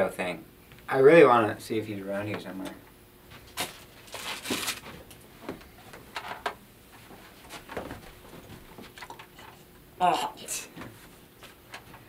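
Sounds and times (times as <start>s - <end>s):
rustling: 3.4s - 5.2s.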